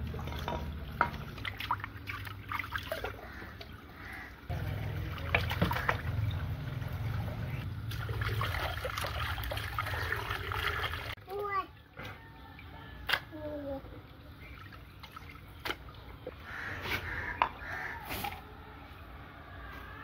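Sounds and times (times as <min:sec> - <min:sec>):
hose water splashing into bowl: 0:00.0 - 0:11.2.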